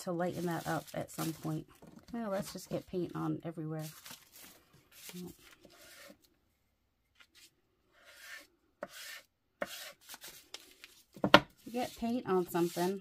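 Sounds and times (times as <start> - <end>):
scratchy brush strokes on paper: 0.0 - 1.6, 3.8 - 6.2, 7.4 - 10.4, 11.6 - 13.0.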